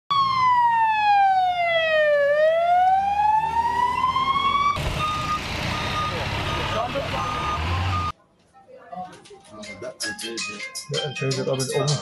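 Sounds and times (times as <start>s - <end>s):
ambulance siren wailing: 0.1s - 8.1s
street noise: 2.0s - 10.0s.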